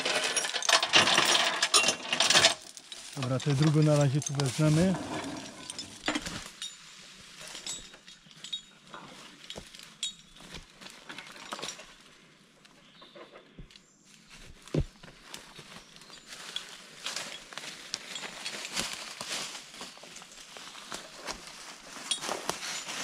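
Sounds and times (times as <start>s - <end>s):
steel chains clinking: 0.0s - 12.0s, 16.0s - 18.8s, 22.0s - 23.0s
footsteps in dry leaves: 2.8s - 7.6s, 14.1s - 23.0s.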